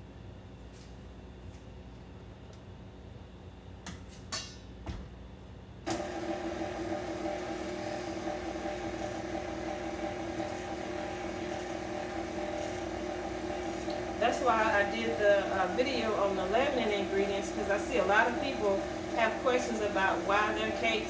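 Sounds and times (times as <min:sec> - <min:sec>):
stand mixer motor whining: 0:05.9 - 0:21.0.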